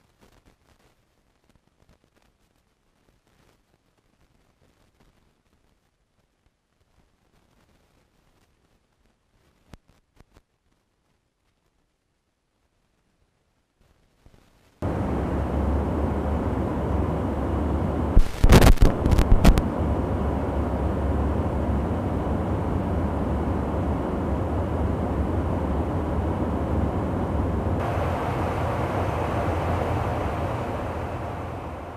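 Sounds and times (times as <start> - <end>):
aircraft rumble in flight: 14.8 - 31.9
sharp clicks and knocks: 18.2 - 19.7.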